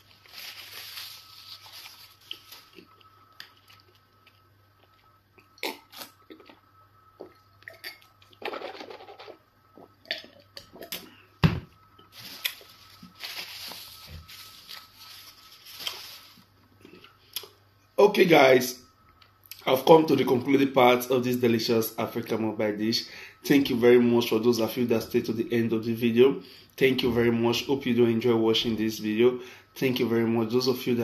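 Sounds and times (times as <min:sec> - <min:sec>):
tissue rustling: 0:00.0 - 0:02.8, 0:12.1 - 0:16.5.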